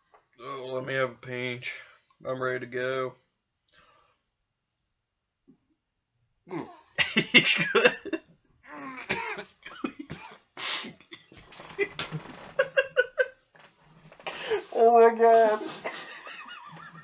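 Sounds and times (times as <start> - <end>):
man coughing and gagging: 6.5 - 8.2, 8.8 - 13.2
man laughing: 7.0 - 8.2, 11.0 - 13.3, 15.7 - 17.0.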